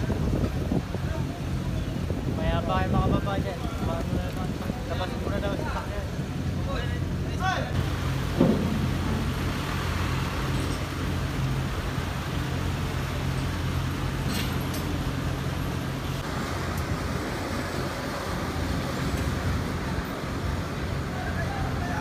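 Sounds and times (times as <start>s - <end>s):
low engine drone: 6.1s - 21.6s
light metal clanks: 8.2s - 11.5s, 14.2s - 15.3s.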